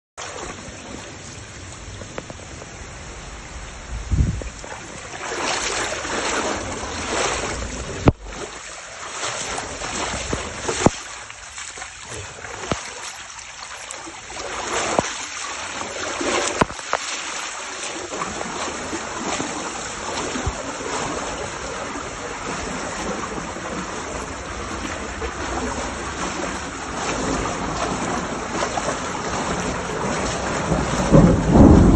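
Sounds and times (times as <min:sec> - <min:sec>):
torrential rain on flooded street: 0:00.2 - 0:31.9.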